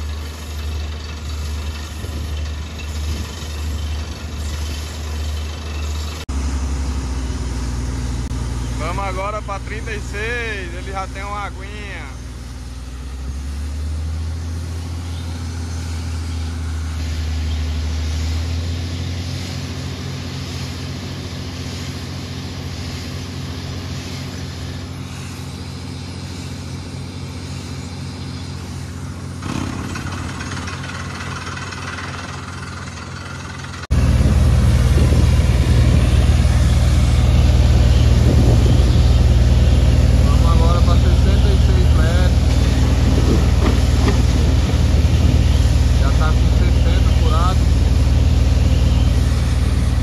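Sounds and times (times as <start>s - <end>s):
drilling rig engine hum: 0.0s - 50.0s
steady noisy haze: 8.7s - 13.3s, 14.0s - 29.7s, 33.9s - 50.0s.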